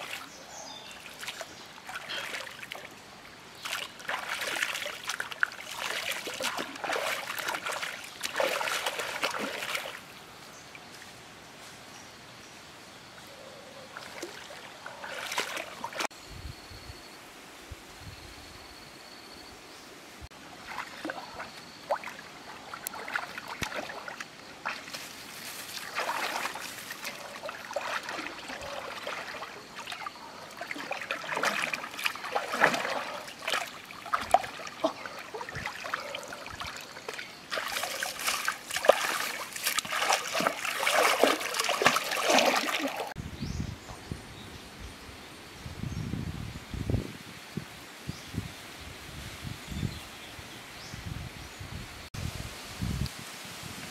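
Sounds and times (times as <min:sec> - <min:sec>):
river water splashing: 0:00.0 - 0:10.2, 0:13.9 - 0:16.1, 0:20.4 - 0:43.2.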